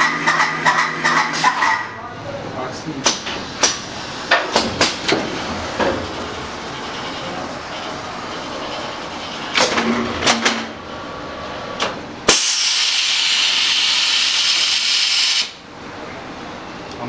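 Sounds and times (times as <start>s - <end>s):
machine knocks and clunks: 3.0s - 6.2s
loud steady hiss: 12.3s - 15.6s.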